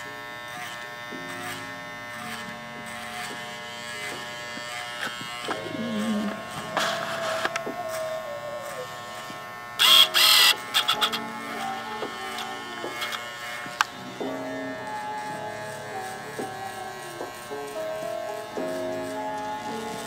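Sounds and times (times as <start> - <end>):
electric hair trimmer buzzing: 0.0 - 20.0
background music: 5.4 - 20.0.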